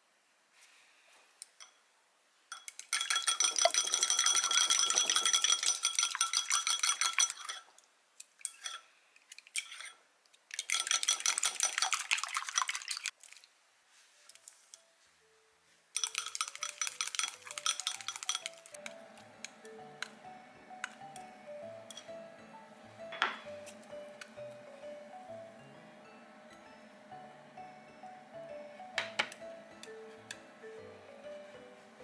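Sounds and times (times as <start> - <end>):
utensil clinking against ceramic bowl: 2.5 - 7.8, 8.4 - 8.9, 10.6 - 12.8, 16.0 - 20.1, 21.8 - 22.2.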